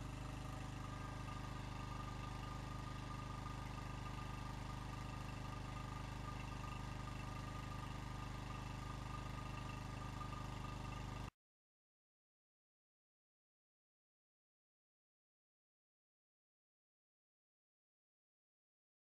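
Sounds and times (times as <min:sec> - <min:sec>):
small engine idling: 0:00.0 - 0:11.3.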